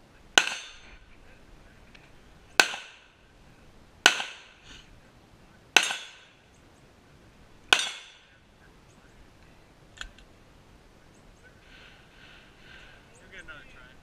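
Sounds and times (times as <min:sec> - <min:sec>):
handgun shots with echo: 0:05.8 - 0:06.2.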